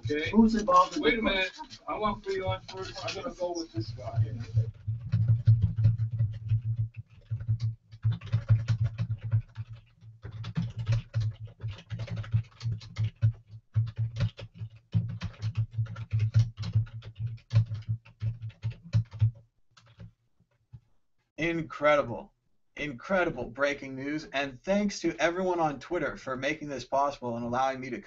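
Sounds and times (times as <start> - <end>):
rapid typing on keyboard: 0.0 - 20.1.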